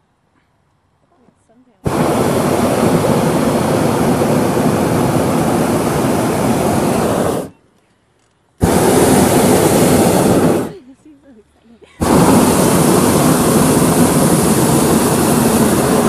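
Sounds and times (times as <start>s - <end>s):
propane burner blast: 1.8s - 7.6s, 8.6s - 11.0s, 12.0s - 16.0s.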